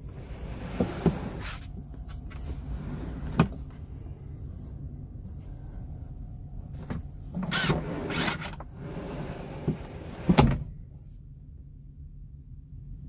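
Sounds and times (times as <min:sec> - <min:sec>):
fridge unit sliding on runners: 0:00.0 - 0:01.7, 0:02.4 - 0:03.7, 0:07.4 - 0:10.7.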